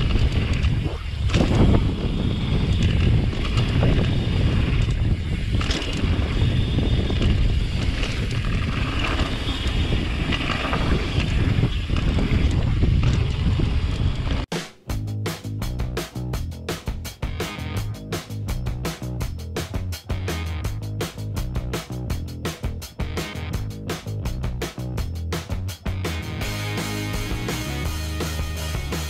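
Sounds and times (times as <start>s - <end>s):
tyres rumbling on dirt: 0.0s - 14.5s
wind buffeting microphone: 0.0s - 14.5s.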